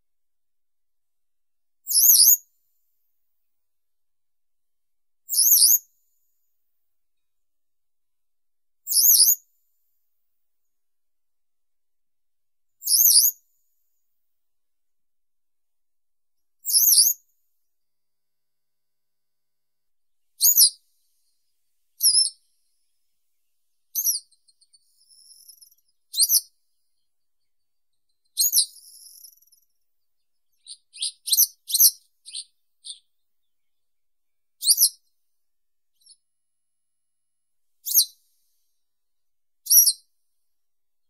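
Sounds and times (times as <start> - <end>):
bird call notes: 30.6 - 33.1.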